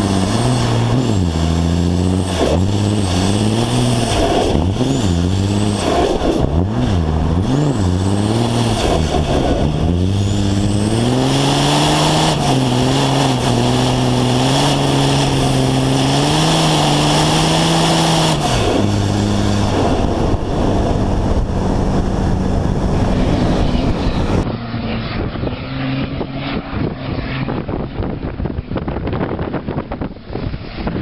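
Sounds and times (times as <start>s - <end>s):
diesel truck engine running hard: 0.0s - 28.7s.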